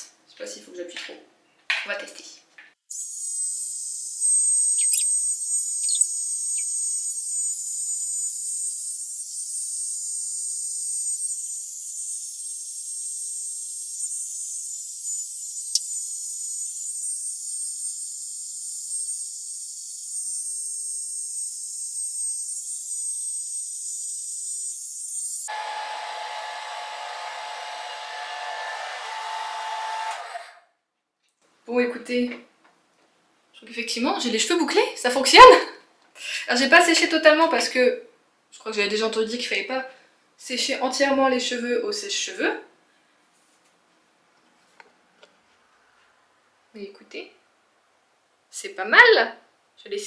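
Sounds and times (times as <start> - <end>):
faint falling squeaks: 3.8 - 12.4
hair dryer running: 25.5 - 30.6.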